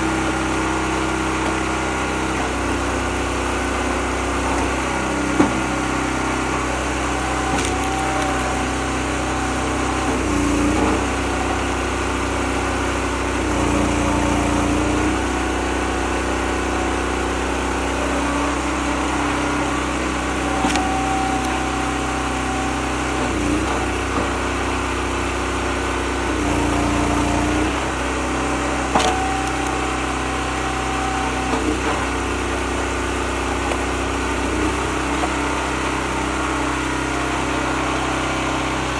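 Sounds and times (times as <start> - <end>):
small gas engine running: 0.0 - 38.9
wood splitting cracks: 0.6 - 2.9, 7.4 - 8.6, 20.4 - 24.4, 28.8 - 30.0.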